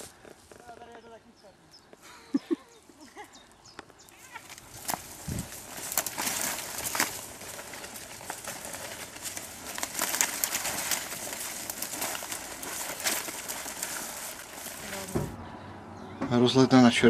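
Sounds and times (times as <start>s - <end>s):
branches scraping against clothing: 0.0s - 1.1s, 3.9s - 15.4s.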